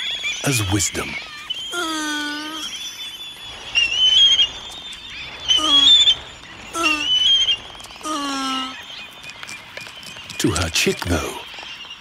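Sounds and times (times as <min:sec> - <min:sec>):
chicks squealing calls: 0:00.0 - 0:09.2
high wavering whistle-like cries: 0:00.0 - 0:12.0.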